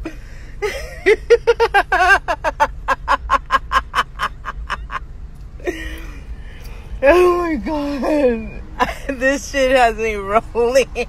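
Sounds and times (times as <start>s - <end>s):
woman laughing hard: 0.0s - 5.0s, 8.8s - 9.2s.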